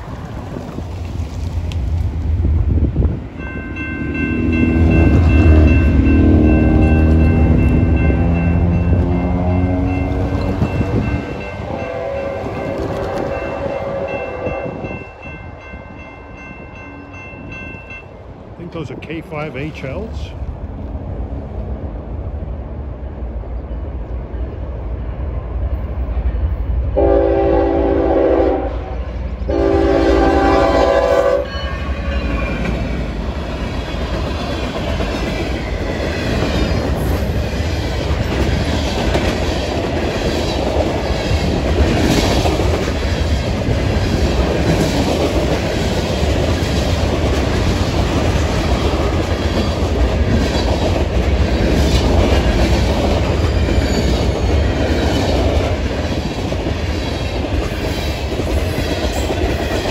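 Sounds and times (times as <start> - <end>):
freight train rumbling past: 0.0 - 59.9
locomotive horn blasts: 4.0 - 15.0, 27.0 - 31.9.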